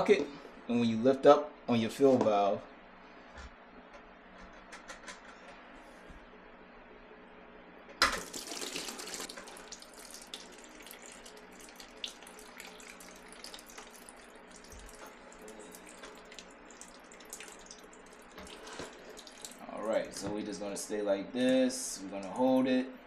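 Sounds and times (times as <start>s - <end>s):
water pouring into plastic tub: 8.2s - 20.1s.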